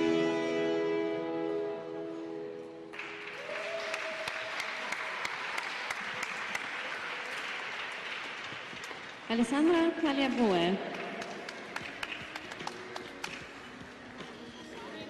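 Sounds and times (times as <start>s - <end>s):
audience applauding: 2.9s - 9.3s, 10.3s - 13.7s.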